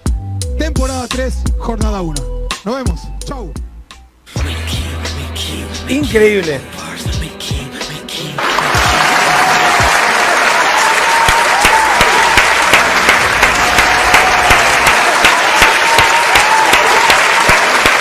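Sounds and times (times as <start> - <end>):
crowd applause: 8.4 - 18.0.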